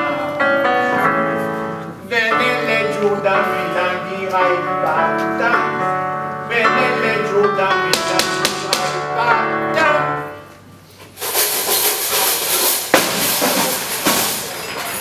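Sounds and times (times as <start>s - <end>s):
held notes of song music: 0.0s - 10.9s.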